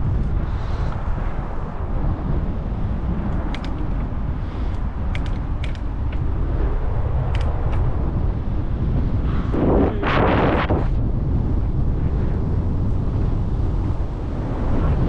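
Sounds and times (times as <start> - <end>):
bicycle tyres on road: 0.0 - 15.0
wind on microphone: 0.0 - 15.0
sharp clicks: 3.3 - 4.0, 4.7 - 6.2, 7.3 - 7.9.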